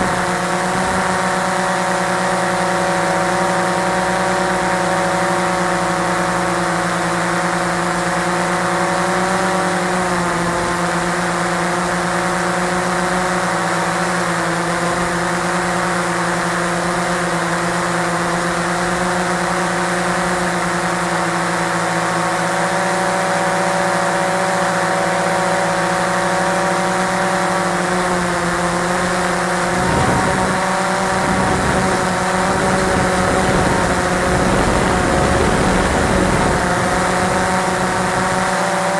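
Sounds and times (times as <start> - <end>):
drone propellers whining: 0.0 - 38.9
low rumbling: 29.6 - 38.6.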